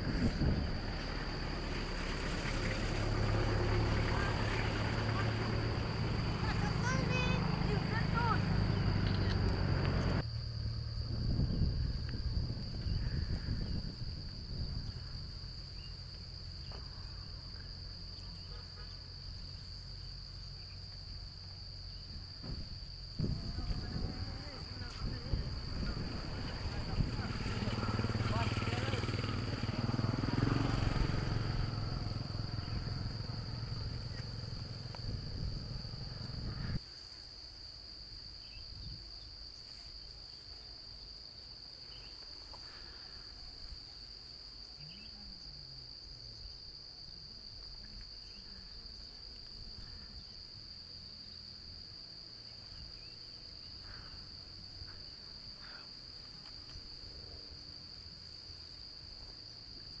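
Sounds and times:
loud low rumbling: 0.0s - 15.6s, 22.4s - 36.8s.

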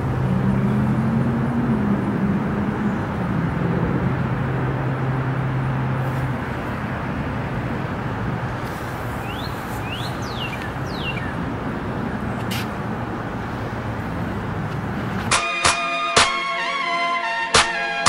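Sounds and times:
steady rushing noise: 0.0s - 16.4s
bird chirping: 9.2s - 11.5s.

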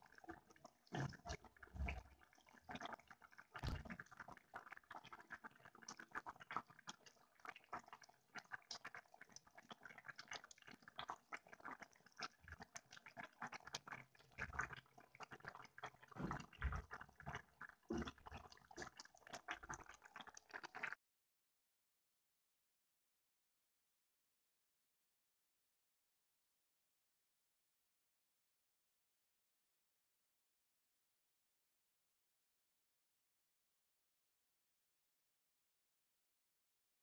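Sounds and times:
soup bubbling in a pot: 0.0s - 21.0s.

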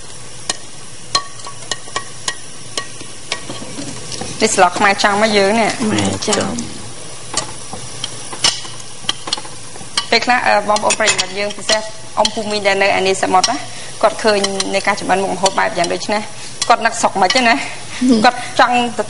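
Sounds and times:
food sizzling in a frying pan: 0.0s - 19.0s
pitched voice-like sound: 5.8s - 6.9s.

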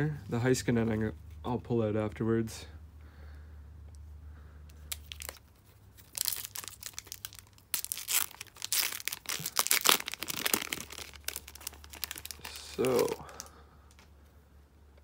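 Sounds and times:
wrapper tearing and crinkling: 4.9s - 13.5s.

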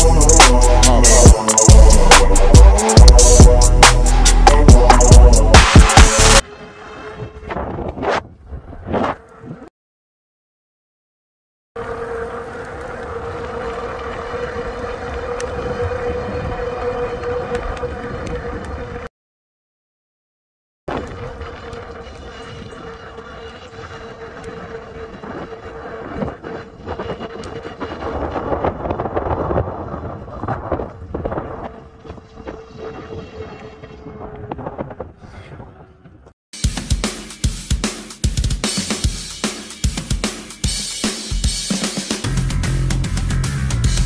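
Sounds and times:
e-bike motor whining: 11.8s - 19.1s, 20.9s - 36.3s
road rumble: 11.8s - 19.1s
tyres and wind rumble: 11.8s - 19.1s, 20.9s - 36.4s.

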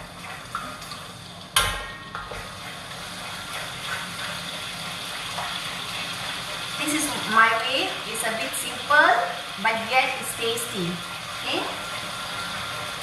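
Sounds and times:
sauce sizzling: 2.3s - 13.0s.

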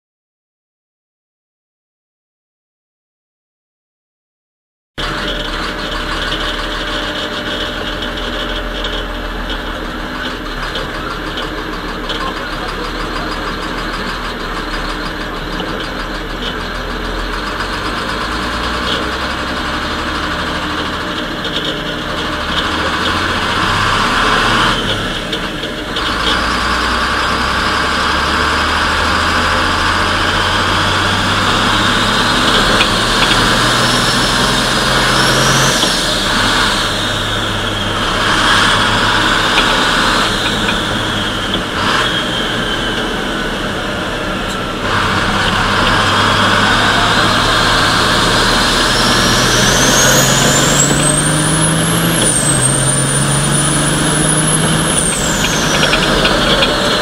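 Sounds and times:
truck diesel engine shifting up: 5.0s - 57.0s
high turbo whistle: 26.6s - 57.0s.

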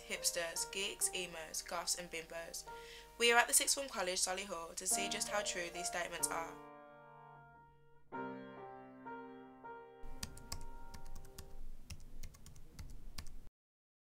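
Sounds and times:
soft background music: 0.0s - 13.2s
keyboard keys clicking: 10.0s - 13.4s.

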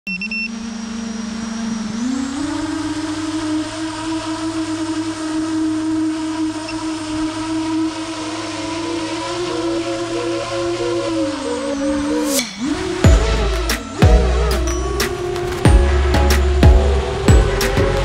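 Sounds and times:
drone motor whine: 0.1s - 18.0s
propeller wash rushing: 6.2s - 18.0s
short high beep: 12.2s - 16.9s.

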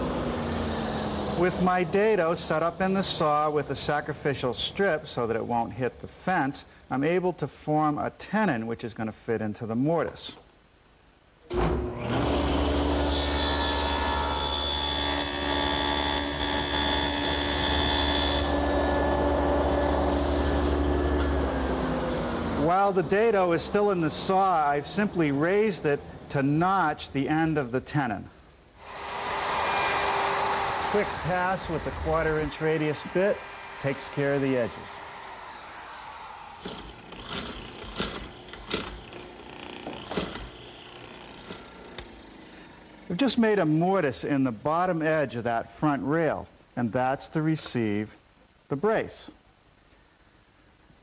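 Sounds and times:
saw motor running: 0.0s - 2.9s, 11.9s - 24.7s, 28.8s - 43.4s
table saw cutting wood: 0.0s - 3.5s, 11.5s - 25.8s, 28.8s - 43.4s
steady motor hum: 28.8s - 43.1s.

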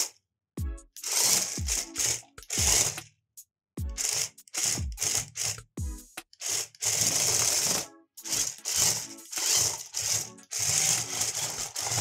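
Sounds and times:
toy tank motors whirring: 1.0s - 3.0s, 4.0s - 5.7s, 6.4s - 12.0s.

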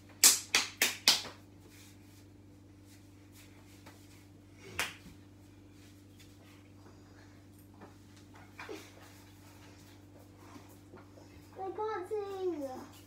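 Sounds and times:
faint steady hum: 0.0s - 13.0s
hand claps: 0.1s - 1.4s, 4.7s - 5.1s.

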